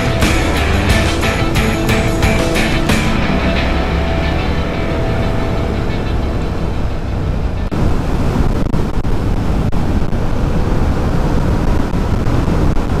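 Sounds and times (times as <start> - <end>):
motorcycle engine running: 0.0 - 7.7
wind rush on microphone: 4.7 - 13.0.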